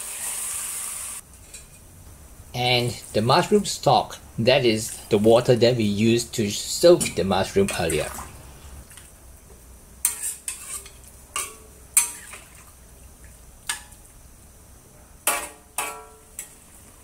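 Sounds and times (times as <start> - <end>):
metal spatula scraping a wok: 10.0 - 12.4.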